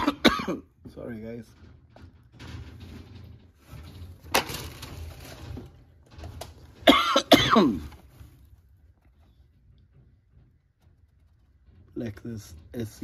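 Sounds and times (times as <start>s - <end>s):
man coughing hard: 0.0s - 0.7s, 6.8s - 8.0s
rustling of packaged toys: 3.5s - 6.9s.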